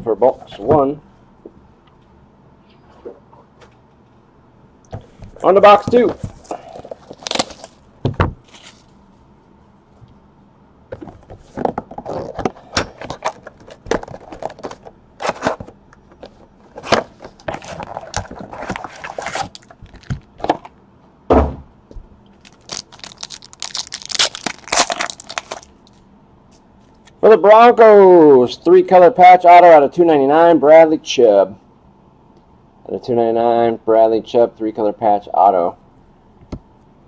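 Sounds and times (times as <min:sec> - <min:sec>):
foil pack tearing: 0:06.5 - 0:07.8, 0:22.4 - 0:25.7.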